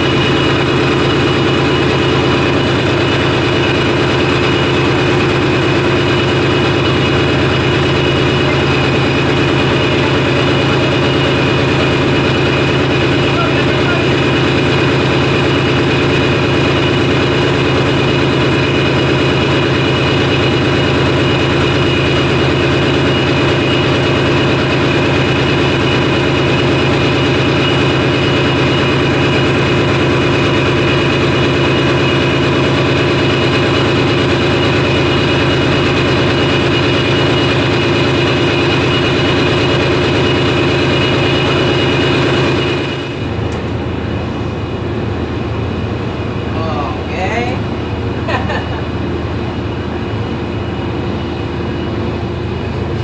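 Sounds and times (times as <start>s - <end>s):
diesel engine droning: 0.0s - 53.0s.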